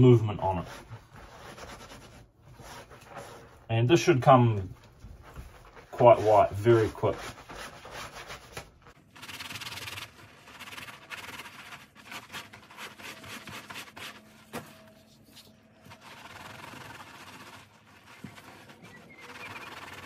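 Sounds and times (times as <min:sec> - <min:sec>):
cloth scrubbing fabric: 0:04.8 - 0:20.0.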